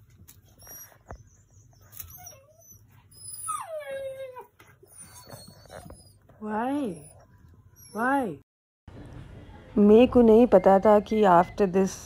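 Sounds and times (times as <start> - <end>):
puppy whining: 0.2 - 8.4.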